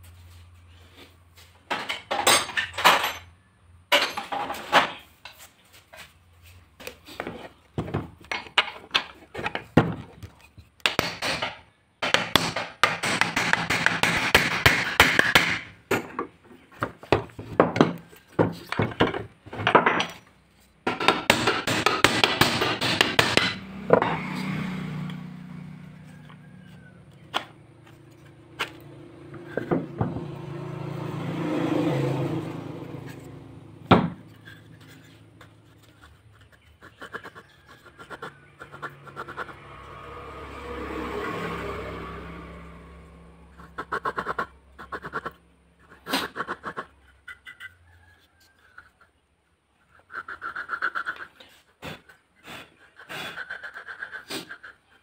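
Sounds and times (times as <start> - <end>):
hammer tapping metal: 10.8 - 16.3, 20.8 - 24.3.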